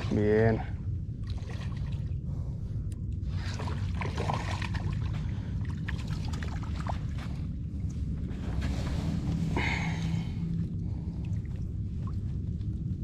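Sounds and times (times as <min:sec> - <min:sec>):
wind rumble on microphone: 0:00.0 - 0:13.0
light water splashes: 0:01.2 - 0:02.2, 0:03.1 - 0:07.5.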